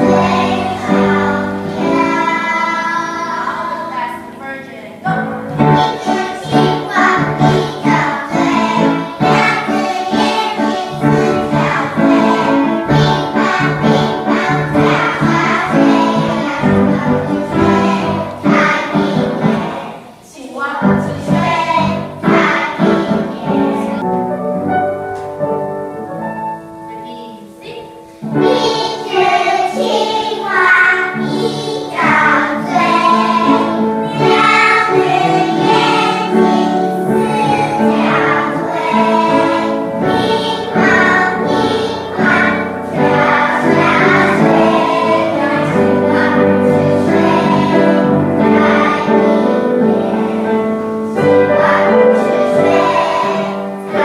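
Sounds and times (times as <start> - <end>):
children singing together: 0.0 - 24.0, 28.1 - 54.0.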